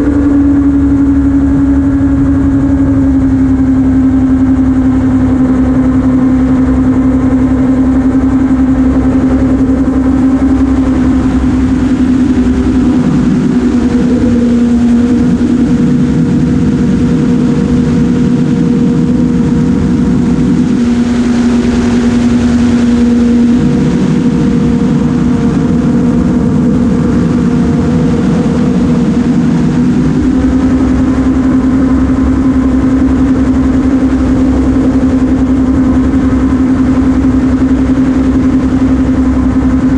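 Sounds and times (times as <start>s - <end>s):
gyroplane engine in flight: 0.0s - 39.9s.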